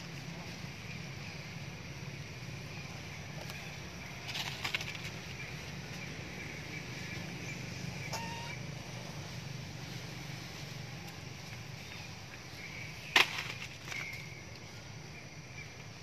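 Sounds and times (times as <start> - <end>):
steady low hum: 0.0 - 16.0
short high chirp: 8.1 - 8.6.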